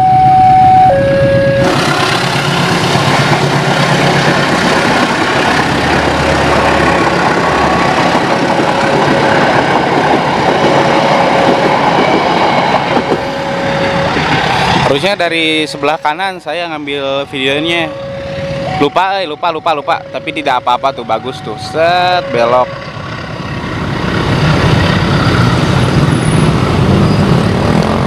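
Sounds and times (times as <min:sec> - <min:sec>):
level-crossing warning alarm: 0:00.0 - 0:27.4
locomotive engine hum: 0:00.0 - 0:28.0
wheel-on-rail noise: 0:01.6 - 0:15.2, 0:22.0 - 0:28.0.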